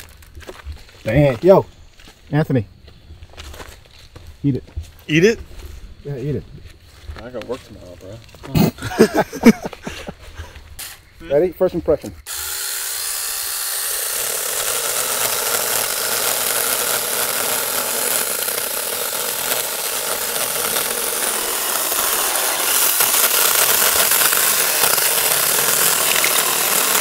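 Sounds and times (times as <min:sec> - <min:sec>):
chainsaw cutting a log: 0:12.2 - 0:27.0.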